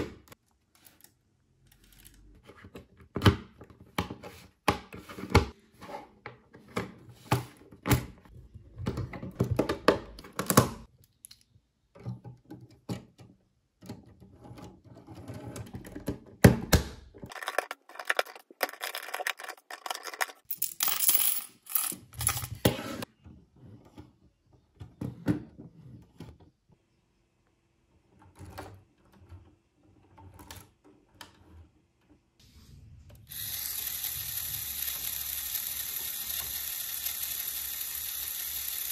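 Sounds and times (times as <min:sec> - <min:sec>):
plastic pieces clicking together: 0:17.3 - 0:21.2.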